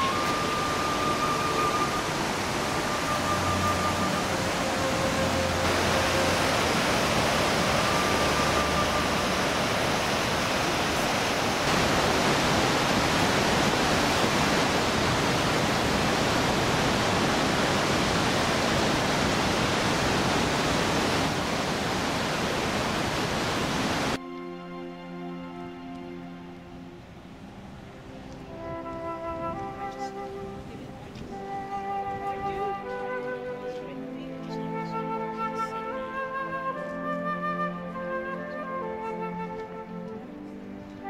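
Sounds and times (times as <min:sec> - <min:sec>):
music: 0:00.0 - 0:11.1, 0:24.2 - 0:41.0
river water rushing: 0:00.0 - 0:32.2.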